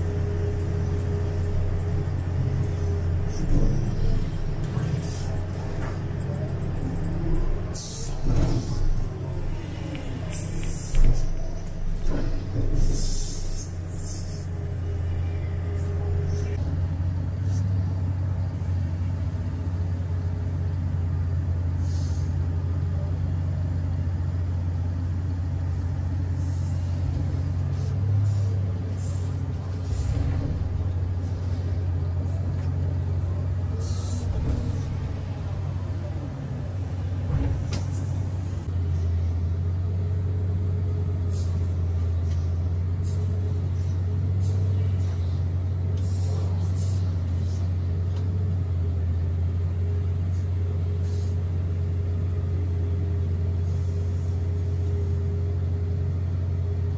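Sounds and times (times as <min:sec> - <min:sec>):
diesel engine drone: 0:00.0 - 0:56.9
excavator hydraulics working: 0:00.0 - 0:56.9
short hisses: 0:21.8 - 0:22.4.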